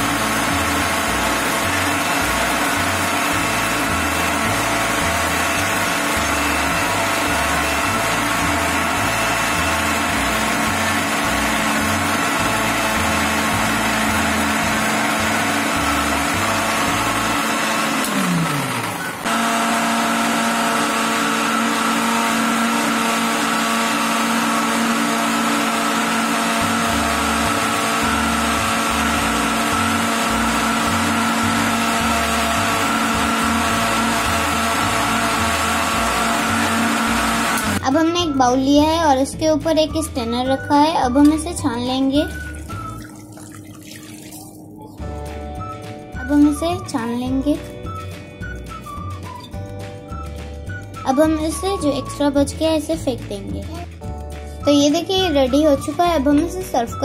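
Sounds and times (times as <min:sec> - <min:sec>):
mixer grinder motor whine: 0:00.0 - 0:37.9, 0:42.2 - 0:43.2.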